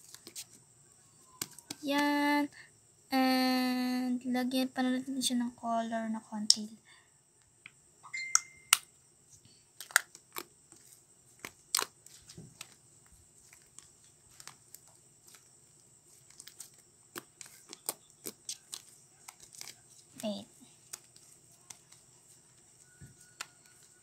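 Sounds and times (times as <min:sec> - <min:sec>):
slime clicking and popping: 0:09.8 - 0:10.5, 0:11.4 - 0:12.0, 0:16.3 - 0:22.0.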